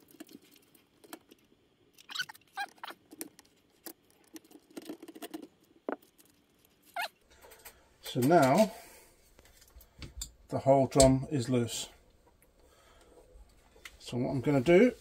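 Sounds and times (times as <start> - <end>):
short squeaks: 2.0 - 3.0.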